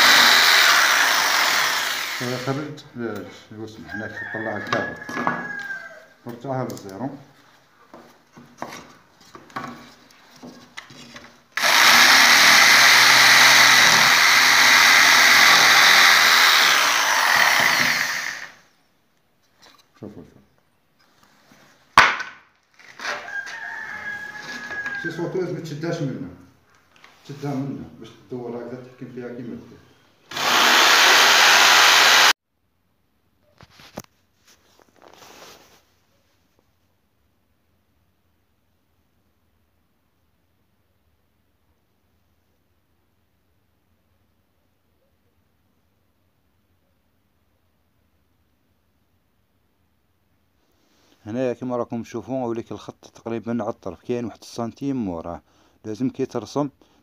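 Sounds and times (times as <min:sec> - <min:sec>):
jigsaw cutting plasterboard: 0:00.0 - 0:02.6, 0:11.6 - 0:18.6, 0:30.3 - 0:32.3.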